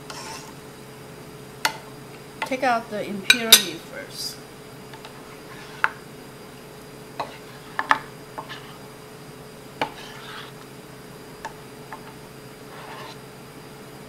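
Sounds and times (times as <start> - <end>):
ladle scraping and scooping: 0.1 - 0.5, 5.2 - 6.0, 7.2 - 8.8, 9.8 - 10.7, 12.7 - 13.2.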